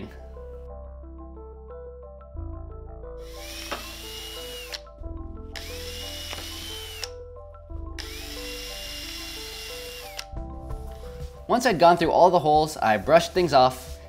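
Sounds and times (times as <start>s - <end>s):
cordless drill whining: 3.2s - 4.9s, 5.6s - 7.2s, 8.0s - 10.3s.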